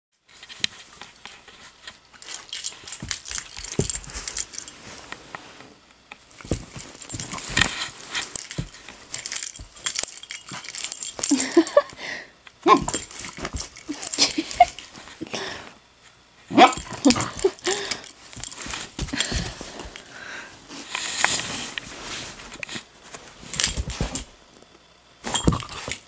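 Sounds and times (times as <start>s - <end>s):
dog collar jingling: 0.2s - 5.0s, 6.4s - 15.1s, 16.5s - 20.1s, 25.3s - 26.0s
scuffling and clatter: 0.2s - 15.3s, 16.0s - 26.0s.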